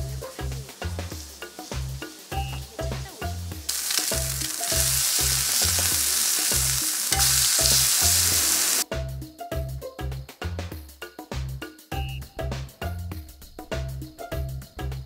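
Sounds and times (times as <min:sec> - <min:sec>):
meat and eggs sizzling on griddle: 0:00.0 - 0:03.0, 0:03.6 - 0:08.8.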